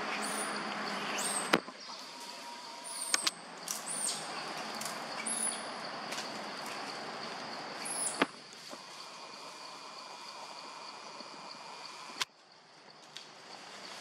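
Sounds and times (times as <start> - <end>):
high insect hum: 0.0 - 14.0
sharp clicks: 3.1 - 3.9
high falling chirps: 7.6 - 12.2.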